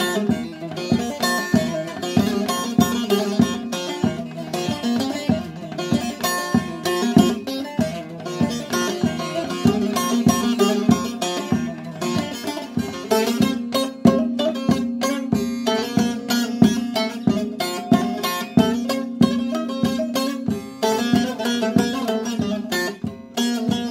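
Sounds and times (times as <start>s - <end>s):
long-necked lute plucked: 0.0s - 23.9s.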